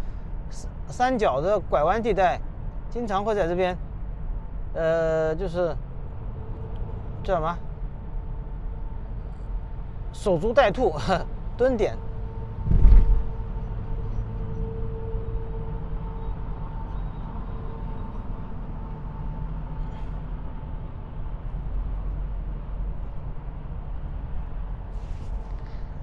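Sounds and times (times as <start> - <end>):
tyre and engine rumble: 6.0 - 15.4
short thump: 12.6 - 13.4.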